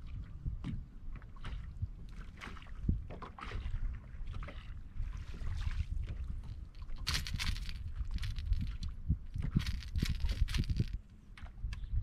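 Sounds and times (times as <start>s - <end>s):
waves lapping against boat hull: 0.0s - 12.0s
wind rumbling on microphone: 0.0s - 12.0s.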